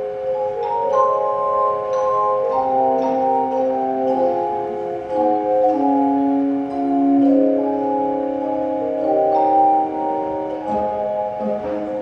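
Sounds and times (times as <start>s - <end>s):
handbell choir ringing melody: 0.0s - 12.0s.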